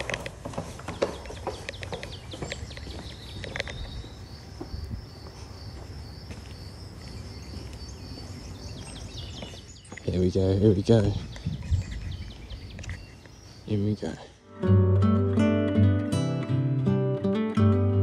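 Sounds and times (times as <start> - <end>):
short clicks and chirps: 12.7 - 13.4.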